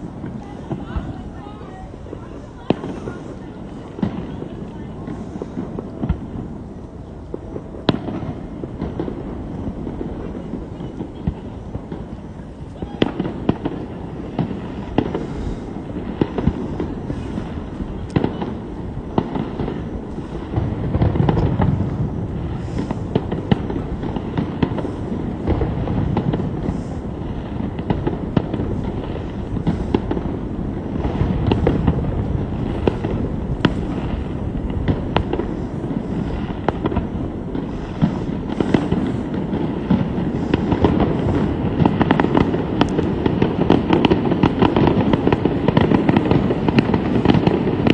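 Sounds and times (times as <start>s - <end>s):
fireworks booming and crackling: 0.0s - 47.9s.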